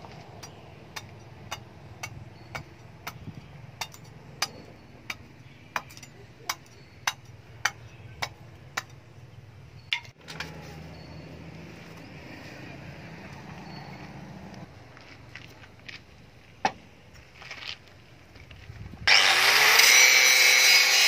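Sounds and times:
steel rod tapping metal blade: 0.4 - 9.0.

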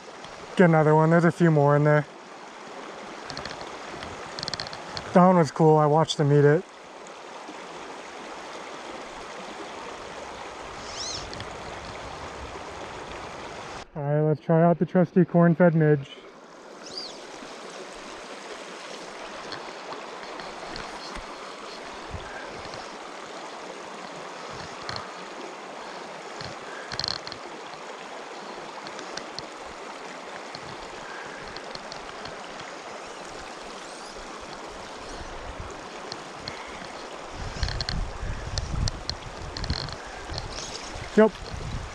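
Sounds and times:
creek running over cobbles: 0.0 - 13.9, 16.2 - 41.9
camera housing squeaks and clicks: 3.3 - 5.1, 10.9 - 12.0, 20.2 - 21.9, 22.5 - 22.9, 24.5 - 25.1, 36.4 - 41.6.

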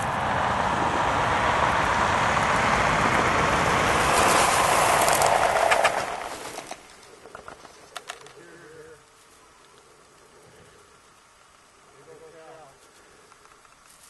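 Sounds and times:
vehicle driving past: 0.0 - 6.8.

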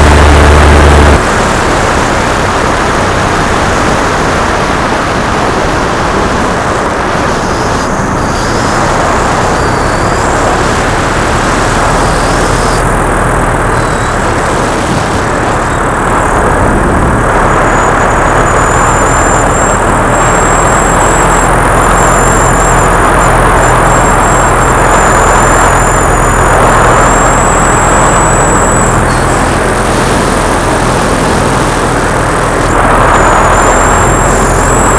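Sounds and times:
paramotor engine and propeller: 0.0 - 34.9
wind rush on microphone: 0.0 - 34.9.

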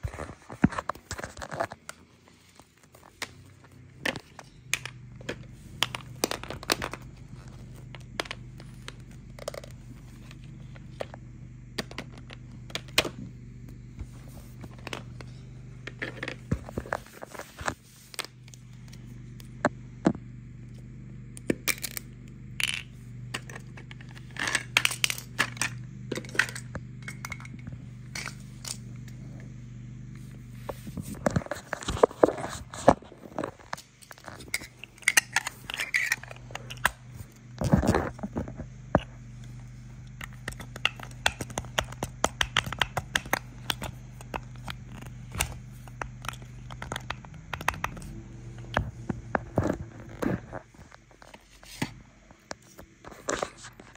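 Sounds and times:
steady low hum: 0.0 - 53.9
plastic toy pieces clattering: 21.7 - 22.0, 22.6 - 27.6, 31.8 - 36.9.

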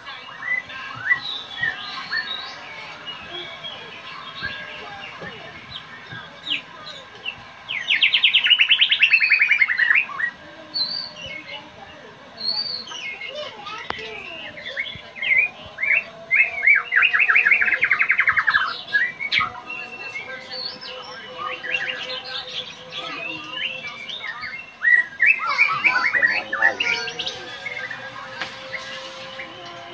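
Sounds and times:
bird singing whistled phrases: 7.7 - 11.5, 14.1 - 29.8.

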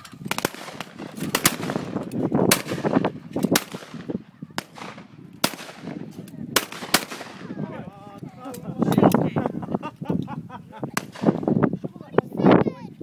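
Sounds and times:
shotgun shots: 0.2 - 7.6, 11.0 - 11.5.

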